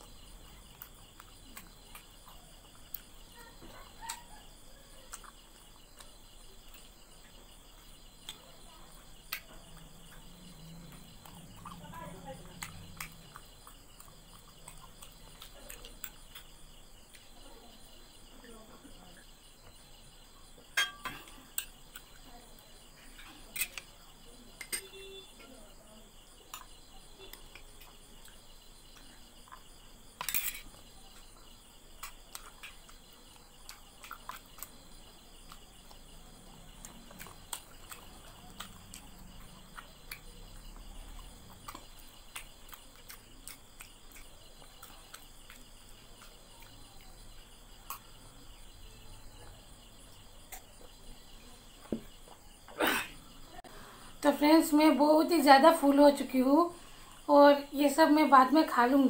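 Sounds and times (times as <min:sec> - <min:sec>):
glass and dishes clinking: 0:20.8 - 0:21.4.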